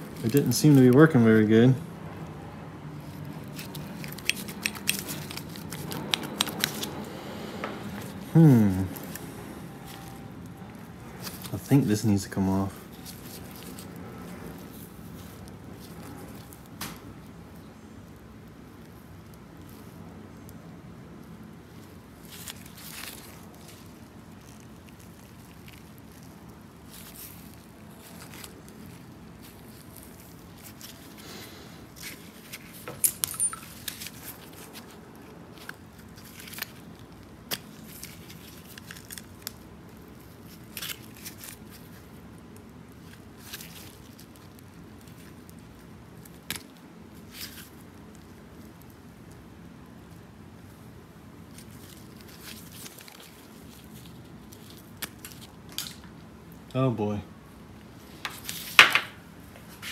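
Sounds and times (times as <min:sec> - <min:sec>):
small metal parts clicking: 0:03.6 - 0:06.7, 0:33.0 - 0:34.1.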